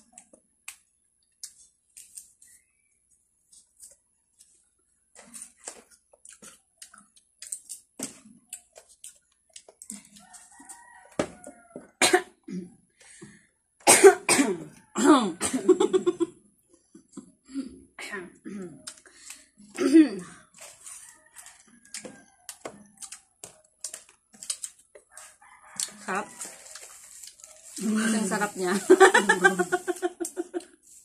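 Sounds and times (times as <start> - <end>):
people chewing crisp fruit: 0.0 - 12.0, 18.6 - 31.0
people coughing: 13.9 - 16.2
people laughing: 15.5 - 16.3, 28.6 - 30.8.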